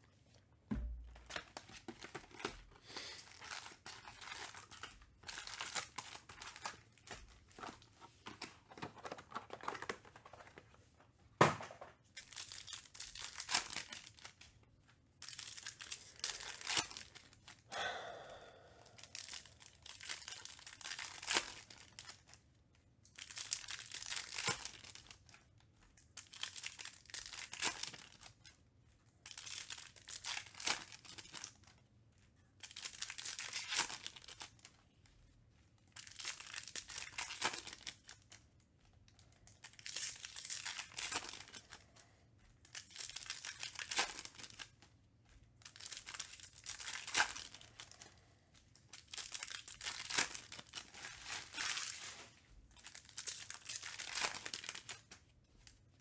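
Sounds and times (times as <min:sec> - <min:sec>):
foil card packs tearing and crinkling: 0:01.2 - 0:10.7, 0:12.2 - 0:14.6, 0:15.2 - 0:17.6, 0:19.0 - 0:22.4, 0:23.1 - 0:25.4, 0:26.1 - 0:28.5, 0:29.2 - 0:31.7, 0:32.6 - 0:34.7, 0:36.0 - 0:38.4, 0:39.5 - 0:42.0, 0:42.6 - 0:44.9, 0:45.6 - 0:48.1, 0:48.8 - 0:55.7.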